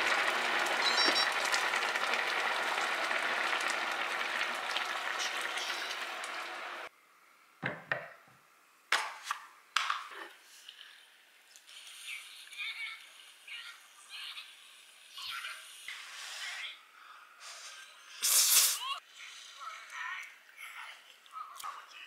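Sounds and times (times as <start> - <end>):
broth boiling in a pot: 0.0 - 6.9, 10.4 - 16.2.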